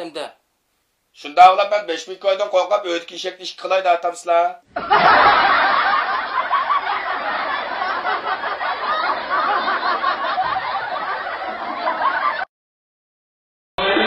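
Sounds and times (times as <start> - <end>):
crowd laughing: 4.7 - 12.5, 13.8 - 14.0.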